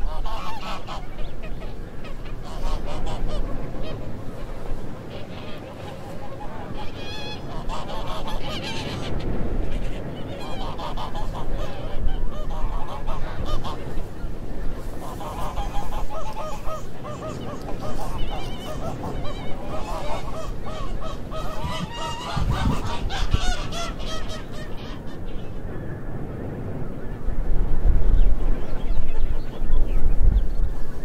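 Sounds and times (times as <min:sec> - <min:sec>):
geese honking: 0:00.0 - 0:25.7.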